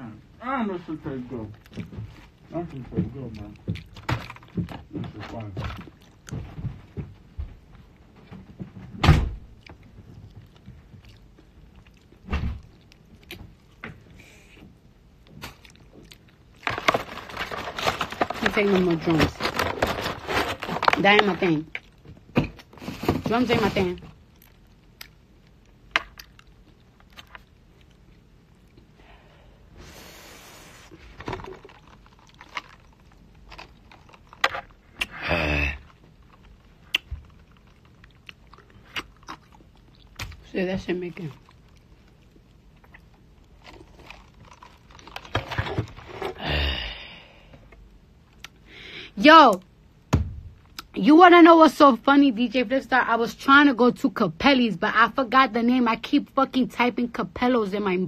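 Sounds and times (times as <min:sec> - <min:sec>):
mouth clicks and lip smacks: 0:36.8 - 0:40.4, 0:48.4 - 0:48.6.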